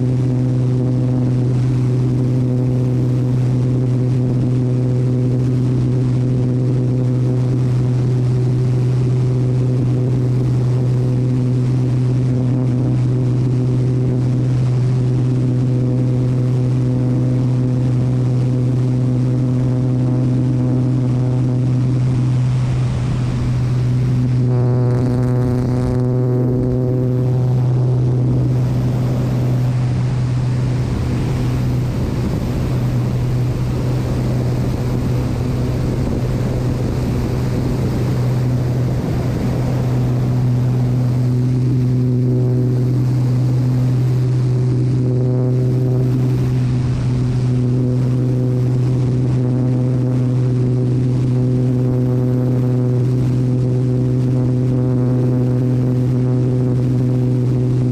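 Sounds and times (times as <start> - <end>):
plane engine and propeller droning: 0.0 - 57.9
air rushing over airframe: 20.5 - 51.3.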